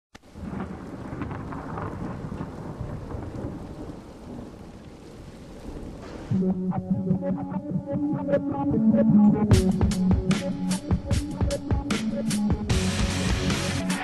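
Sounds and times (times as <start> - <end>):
rushing rain: 0.1 - 6.4
low rolling thunder: 0.3 - 6.6
music with pulsing beat: 6.4 - 14.0.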